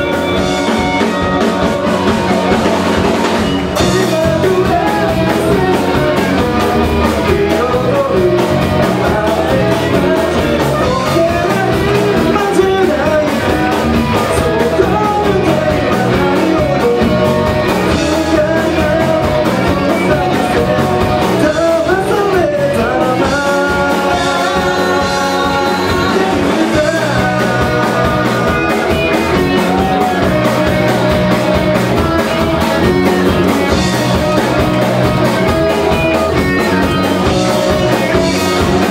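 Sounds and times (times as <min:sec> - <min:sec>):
lead vocalist singing: 0:00.0 - 0:38.9
live rock band playing: 0:00.0 - 0:38.9.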